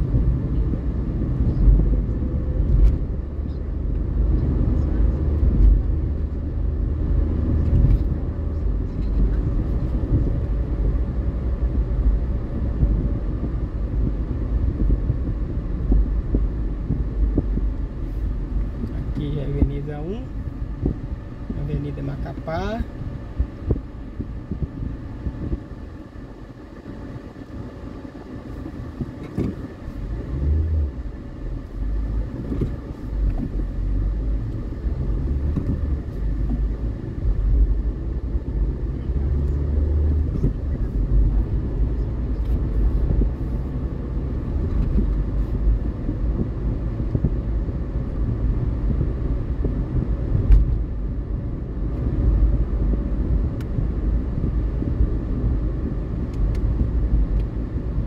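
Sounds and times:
car engine and tyre rumble: 0:00.0 - 0:58.0.

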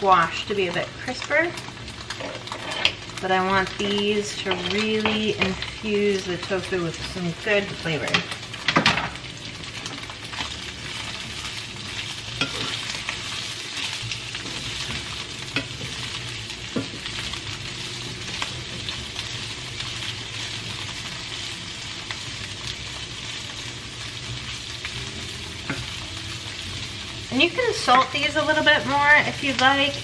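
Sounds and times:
vegetables sizzling in a frying pan: 0:00.0 - 0:30.0
wooden spatula scraping a pan: 0:02.1 - 0:03.0.

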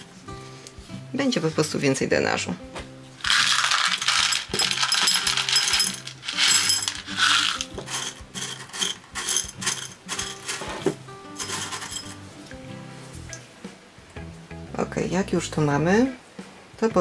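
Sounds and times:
soft background music: 0:00.0 - 0:17.0
granules rattling against glass: 0:03.2 - 0:10.7, 0:11.4 - 0:12.2.

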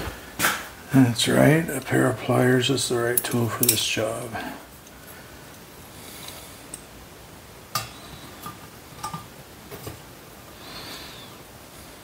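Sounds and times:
pliers clicking on metal: 0:03.2 - 0:03.8.

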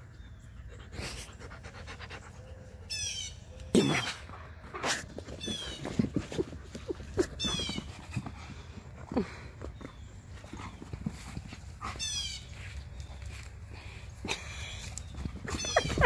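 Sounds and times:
dogs play growling: 0:03.8 - 0:12.1, 0:14.2 - 0:16.0.

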